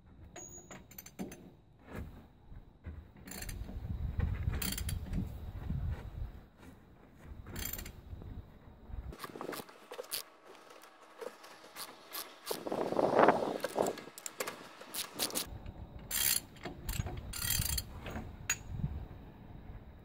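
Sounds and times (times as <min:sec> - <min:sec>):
ratchet wrench clicking: 0:03.3 - 0:03.6, 0:04.6 - 0:05.0, 0:07.6 - 0:07.9, 0:13.6 - 0:15.5, 0:16.1 - 0:17.9
metallic scrapes of nuts: 0:09.2 - 0:15.5, 0:16.1 - 0:18.2.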